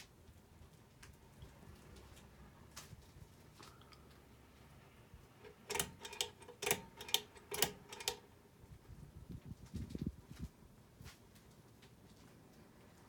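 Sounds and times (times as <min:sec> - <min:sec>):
pull chain clicking and rattling: 0:05.4 - 0:08.3.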